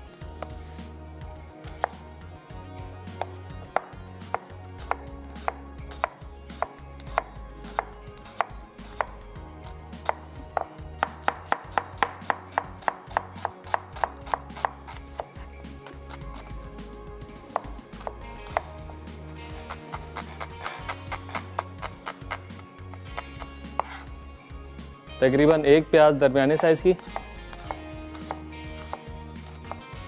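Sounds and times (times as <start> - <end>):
knife chopping onion on board: 1.7 - 2.0, 3.2 - 9.2, 10.0 - 16.5, 17.5 - 18.7, 19.6 - 24.1, 27.0 - 30.0.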